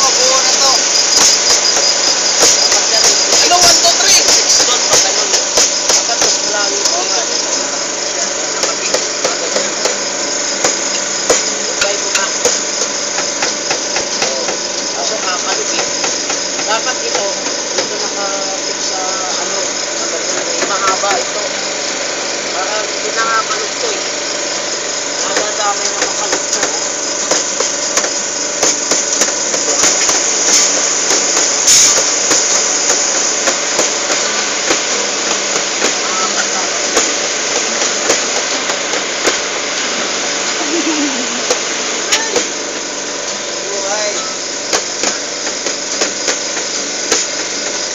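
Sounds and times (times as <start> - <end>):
hand drumming on pails and pans: 0.0 - 18.7, 25.2 - 43.0
acoustic guitar strumming: 0.0 - 47.9
mechanical hum: 0.0 - 47.9.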